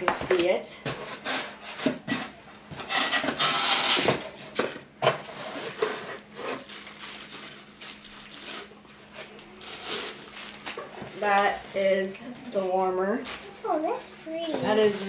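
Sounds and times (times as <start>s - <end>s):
cardboard packaging rustling: 1.2s - 11.4s.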